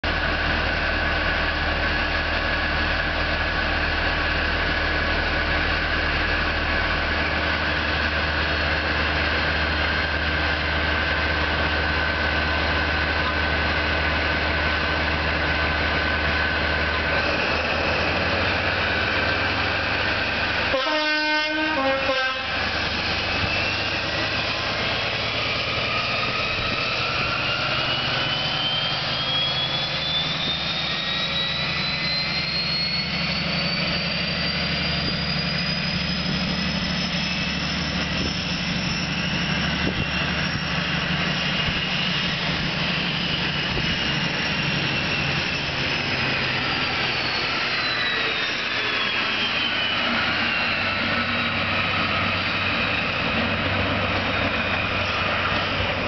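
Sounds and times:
diesel engine turbocharger whine: 0.0s - 56.0s
two-note train horn: 20.7s - 22.8s.

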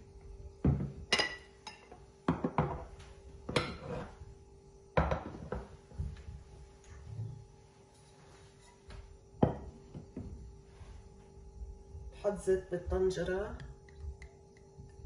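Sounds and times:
ceramic dishes knocking and clinking: 0.6s - 2.9s, 5.0s - 5.7s, 9.4s - 10.3s.

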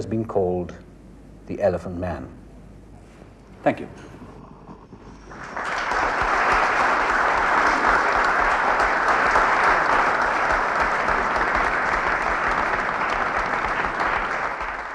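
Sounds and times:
large audience applauding: 4.9s - 14.9s.

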